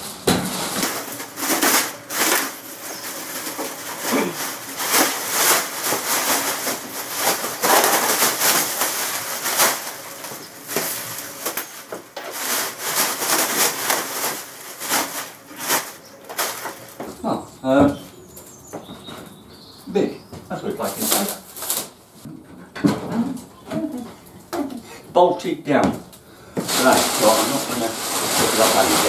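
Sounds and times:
plastic wrapping crinkling: 0.0 - 17.2, 20.7 - 22.0, 26.6 - 29.0.

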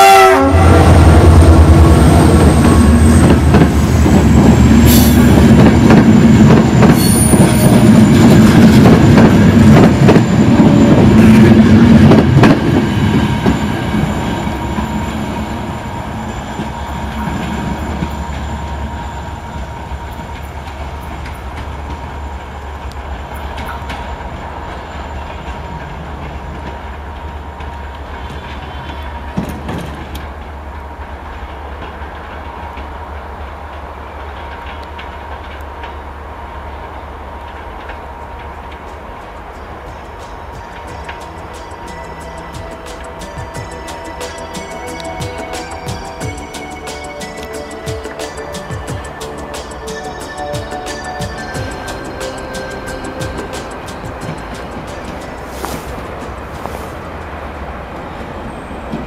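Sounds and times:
wheel squeal: 6.1 - 11.4
train wheels clattering over rail joints: 25.2 - 30.5.

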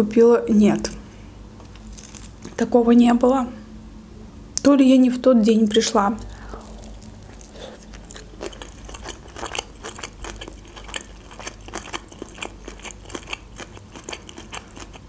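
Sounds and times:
wet chewing clicks and crunches: 1.7 - 2.6, 5.7 - 15.0.

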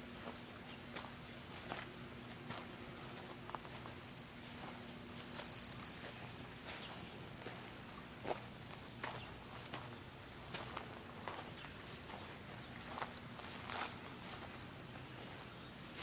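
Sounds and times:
soft footsteps on grass: 0.0 - 16.0
insect trilling: 1.6 - 9.2.

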